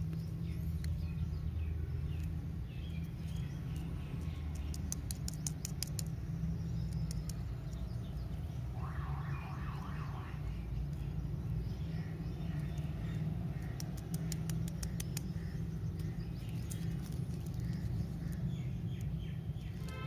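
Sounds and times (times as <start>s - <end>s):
steady low rumble: 0.0s - 20.0s
sharp crackles: 12.6s - 20.0s
candy wrappers crinkling: 13.8s - 18.5s.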